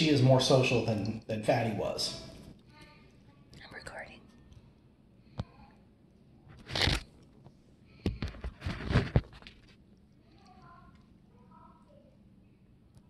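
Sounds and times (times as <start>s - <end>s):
rustling and crunching: 6.5s - 7.5s, 8.2s - 10.0s.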